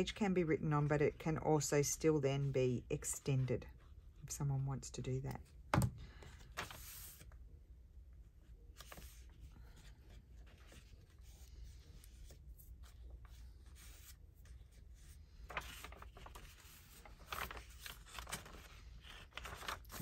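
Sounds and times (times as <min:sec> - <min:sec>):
low room hum: 0:00.0 - 0:20.0
paper rustling and scraping: 0:06.2 - 0:07.4, 0:08.7 - 0:20.0.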